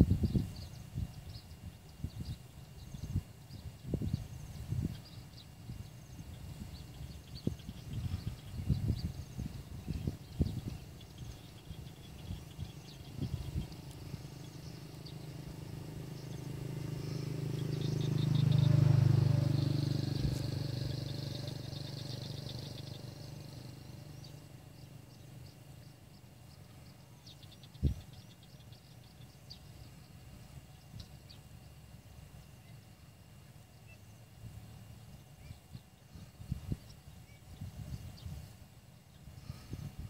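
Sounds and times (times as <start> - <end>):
birds chirping: 0.0 - 40.0
motor passing by: 4.0 - 35.5.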